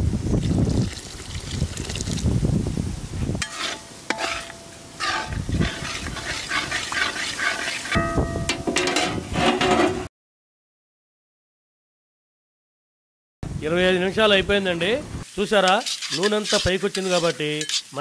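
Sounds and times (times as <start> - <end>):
paste sizzling in oil: 3.3 - 8.0, 15.2 - 18.0
metal spoon scraping iron pan: 3.4 - 10.1, 15.6 - 18.0.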